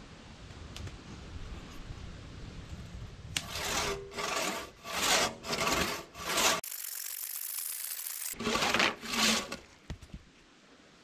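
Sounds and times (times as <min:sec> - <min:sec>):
saw cutting through a log: 0:03.4 - 0:09.6
low background noise: 0:08.4 - 0:11.0.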